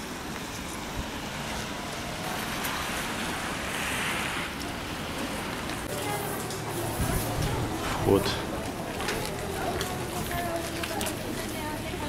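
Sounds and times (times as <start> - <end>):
outdoor hiss: 0.0 - 8.6
wind rumble on microphone: 6.8 - 8.7.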